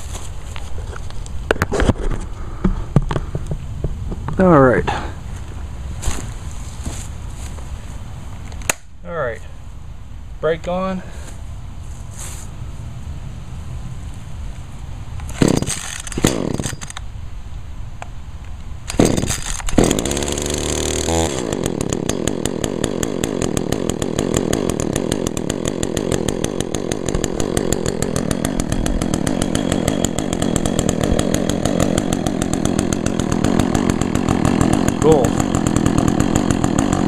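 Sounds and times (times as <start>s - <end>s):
starter cord pulls: 15.2s - 17.0s, 18.9s - 22.3s
chainsaw engine running: 15.3s - 17.0s, 18.9s - 37.0s.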